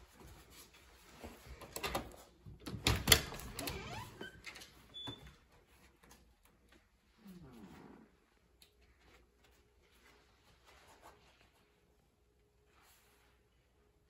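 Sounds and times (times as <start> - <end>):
door squeaking: 2.8 - 5.4.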